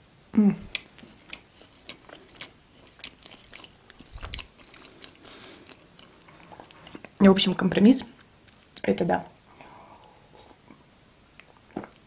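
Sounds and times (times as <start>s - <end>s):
chewing with mouth clicks: 0.2s - 7.2s, 8.1s - 10.6s.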